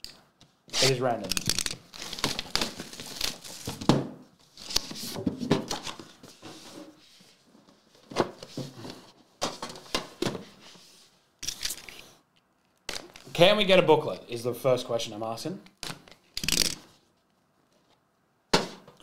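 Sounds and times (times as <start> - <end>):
packaging rustling and scraping: 1.9 - 3.9.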